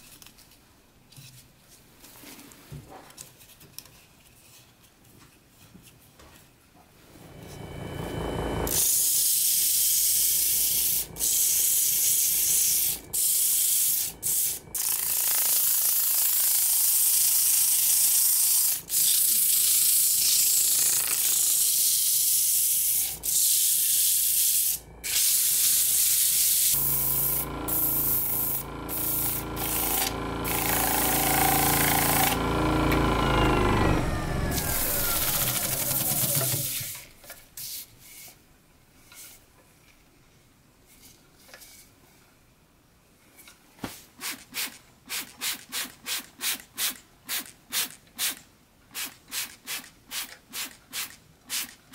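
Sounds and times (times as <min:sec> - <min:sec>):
lathe motor hum: 0:07.3 - 0:08.8, 0:26.8 - 0:36.7
hiss of sanding wood: 0:21.3 - 0:30.1.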